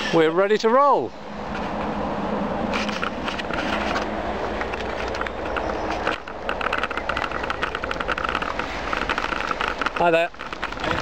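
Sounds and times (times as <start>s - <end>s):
bicycle tyres rattling: 2.7s - 11.0s.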